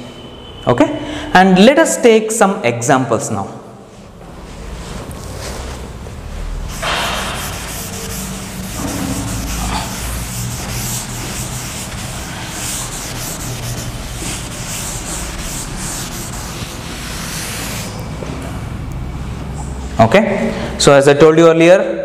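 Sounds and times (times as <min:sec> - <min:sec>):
duster wiping chalkboard: 0:03.9 - 0:18.4.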